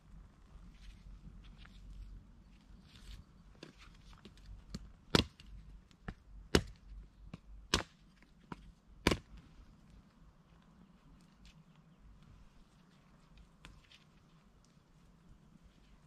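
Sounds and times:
blade chopping firewood: 4.7 - 9.5.

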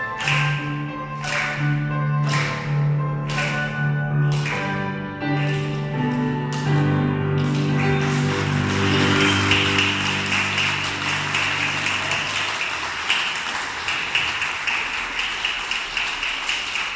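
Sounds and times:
audience applauding: 0.0 - 2.7, 3.3 - 16.9
piano chord ringing: 0.0 - 12.7.

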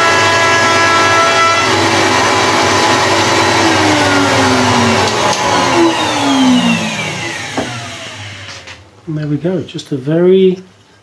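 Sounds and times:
router motor winding down: 1.5 - 8.8.

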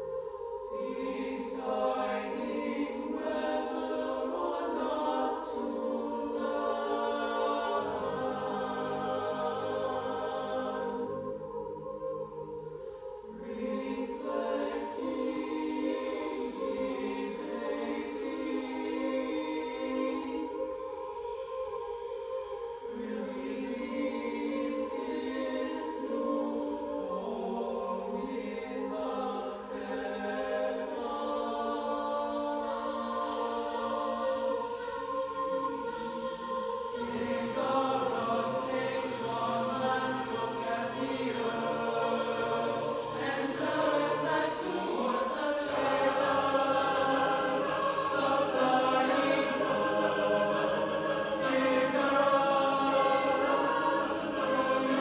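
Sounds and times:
mixed choir singing: 0.0 - 55.0.

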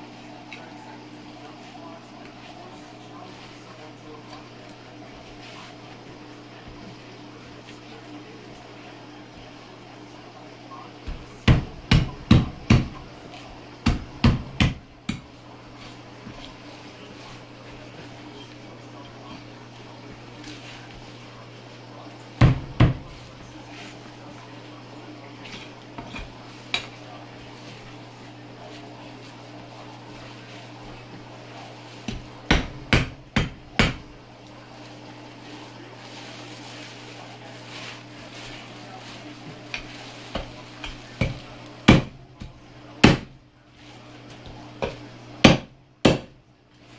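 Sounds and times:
meat cleaver chopping: 11.0 - 13.1, 13.8 - 15.3, 32.0 - 34.1, 39.7 - 43.4, 44.8 - 46.4.

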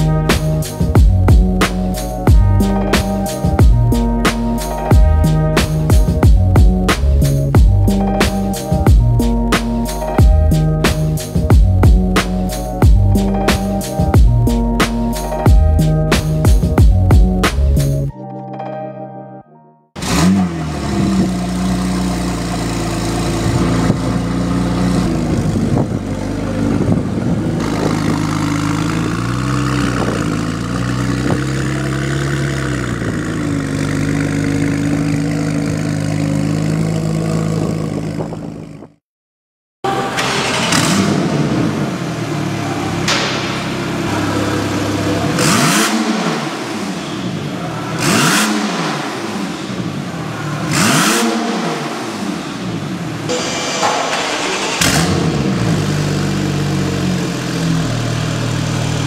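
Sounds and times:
car engine revving: 0.0 - 18.0, 20.0 - 38.9, 39.9 - 59.0
car engine idling: 20.0 - 38.8, 39.9 - 59.0.

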